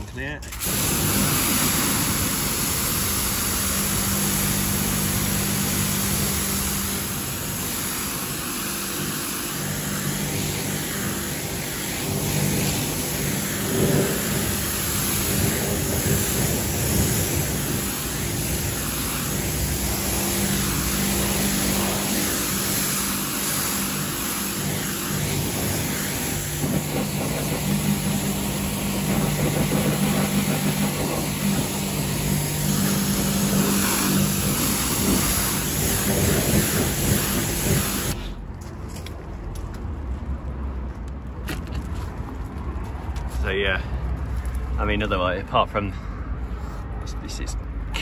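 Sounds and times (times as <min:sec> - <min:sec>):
pressure washer motor humming: 0:00.4 - 0:38.2
high-pressure water jet hissing: 0:00.4 - 0:38.4.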